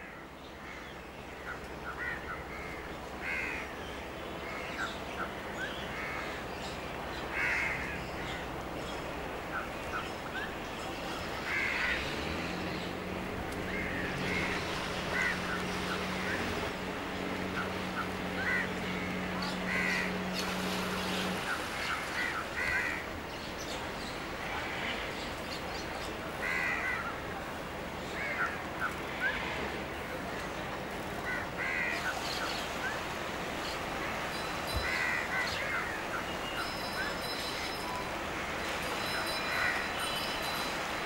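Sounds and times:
steady background hiss: 0.0s - 41.0s
crows cawing: 2.0s - 3.7s, 7.3s - 8.0s, 11.5s - 12.1s, 13.7s - 15.6s, 18.4s - 19.1s, 19.7s - 20.1s, 22.2s - 23.0s, 26.4s - 27.1s, 31.2s - 32.1s, 34.8s - 36.1s, 39.5s - 39.8s.

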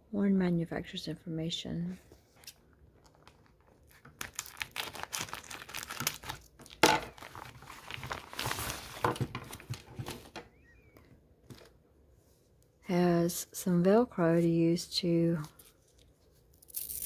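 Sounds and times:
plastic bag crinkling: 3.0s - 9.9s.

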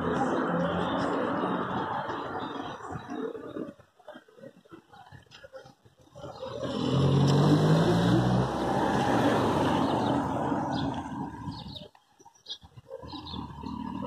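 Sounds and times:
car driving past: 6.4s - 11.7s.

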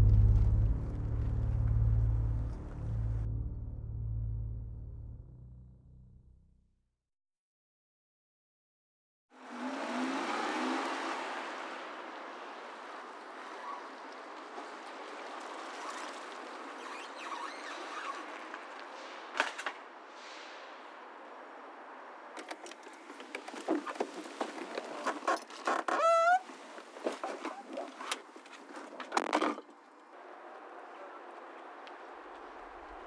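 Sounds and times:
short rising tone: 0.0s - 6.4s
steady outdoor hiss: 11.2s - 24.7s.

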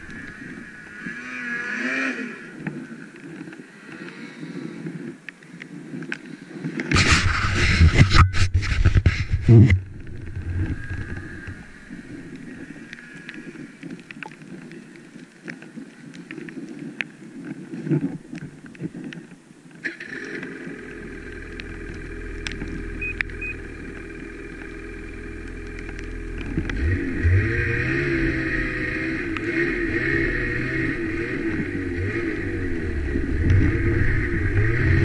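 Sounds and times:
snowmobile engine revving: 0.0s - 2.5s, 19.9s - 35.0s.

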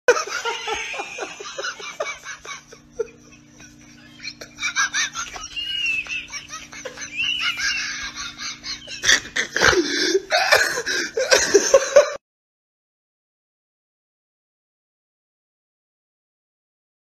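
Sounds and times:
faint steady hum: 0.1s - 12.2s.

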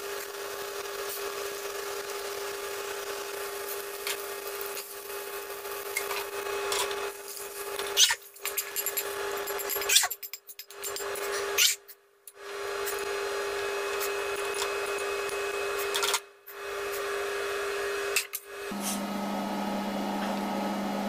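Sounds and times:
cooking hiss in a wok: 0.0s - 7.8s.

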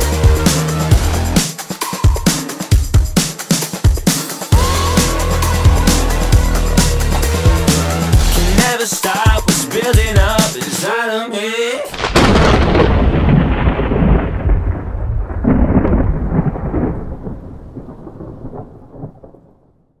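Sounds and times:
thunder crack and rumble: 11.9s - 20.0s.

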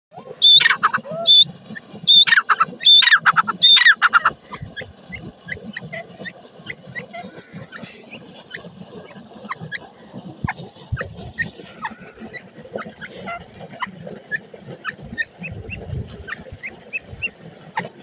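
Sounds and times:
francolin harsh calls: 0.4s - 1.5s, 2.1s - 5.2s.

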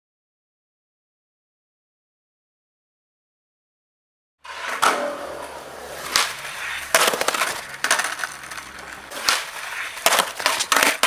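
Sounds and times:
skateboard wheels rolling on concrete: 4.4s - 11.0s
skateboard clacking on pavement: 4.5s - 11.0s.

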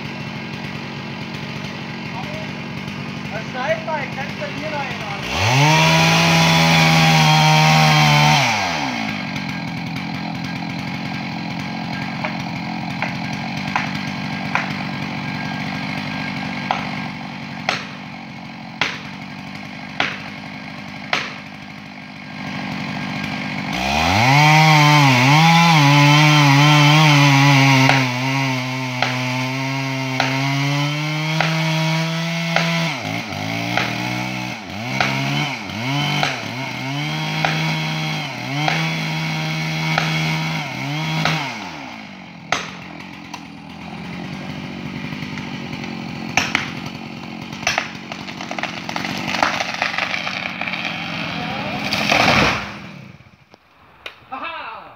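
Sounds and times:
wood cracking: 0.0s - 54.4s
chainsaw cutting: 0.0s - 54.8s
rustling of falling tree: 47.5s - 54.5s.

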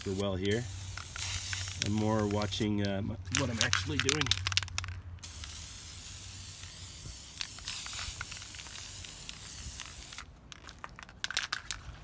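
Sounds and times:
spray can hissing: 0.0s - 2.6s, 5.2s - 10.3s.

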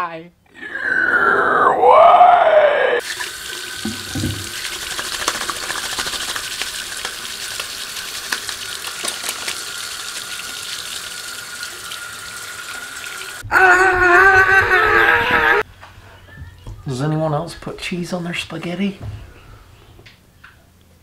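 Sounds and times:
faucet running over hands: 3.0s - 13.4s.

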